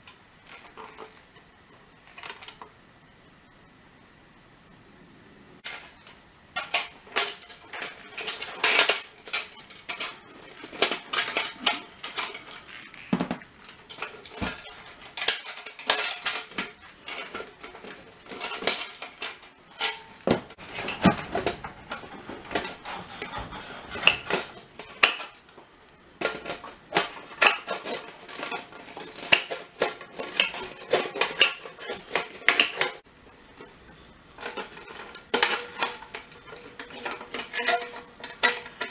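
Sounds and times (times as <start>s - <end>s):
thin metal clinking and rattling: 6.6s - 22.9s, 26.2s - 38.9s.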